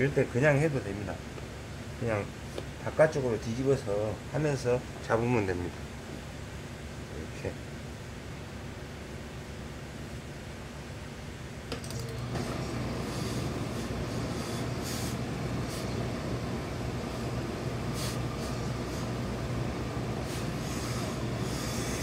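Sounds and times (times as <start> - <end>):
steady machine hum: 0.0 - 22.0
steam iron hissing: 12.2 - 22.0.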